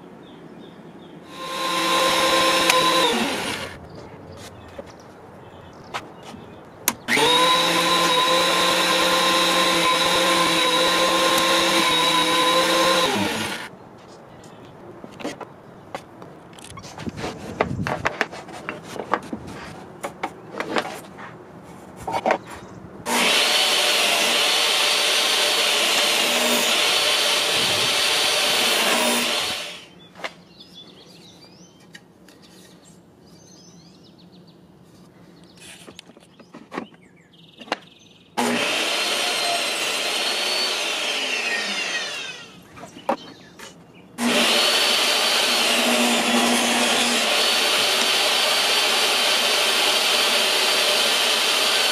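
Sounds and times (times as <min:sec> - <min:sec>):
saw winding down whine: 0:01.3 - 0:03.8, 0:07.1 - 0:13.7, 0:23.1 - 0:29.9, 0:38.4 - 0:42.6, 0:44.2 - 0:51.9
table saw running: 0:01.3 - 0:03.8, 0:07.1 - 0:13.7, 0:23.1 - 0:29.9, 0:38.4 - 0:42.6, 0:44.2 - 0:51.9.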